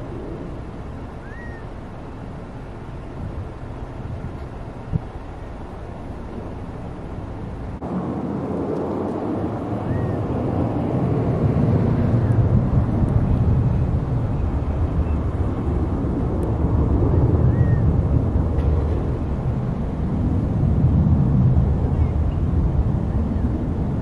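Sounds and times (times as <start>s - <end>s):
low outdoor rumble: 0.0s - 24.0s
faint bird chirp: 1.2s - 1.7s.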